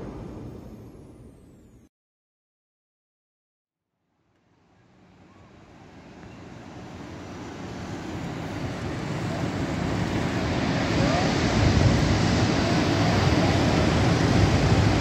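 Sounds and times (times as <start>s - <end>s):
distant surf: 0.0s - 1.5s, 4.9s - 15.0s
wind rushing: 9.5s - 15.0s.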